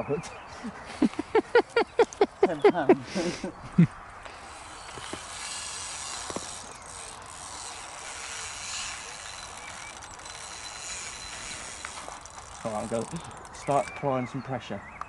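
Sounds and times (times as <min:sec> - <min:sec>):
fishing reel drag clicking: 0:04.2 - 0:13.8.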